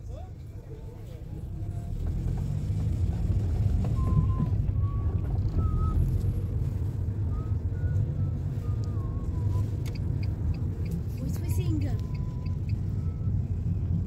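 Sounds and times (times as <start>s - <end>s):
bus engine and road rumble: 0.0s - 14.0s
light evenly spaced ticks: 9.8s - 12.8s.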